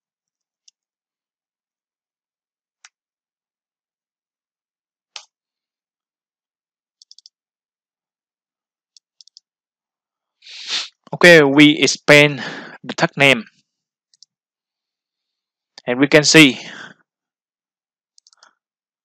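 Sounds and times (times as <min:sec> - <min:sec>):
mouse and keyboard clicks: 0:07.0 - 0:07.3, 0:09.0 - 0:09.4, 0:18.2 - 0:18.6.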